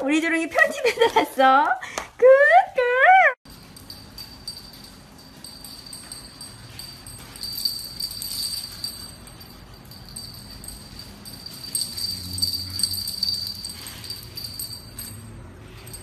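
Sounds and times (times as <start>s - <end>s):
small bell jingling: 3.4s - 16.0s.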